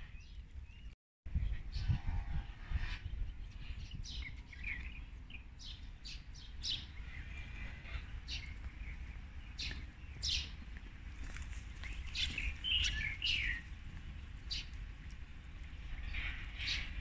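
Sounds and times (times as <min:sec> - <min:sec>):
small birds chirping: 0:02.8 - 0:13.8.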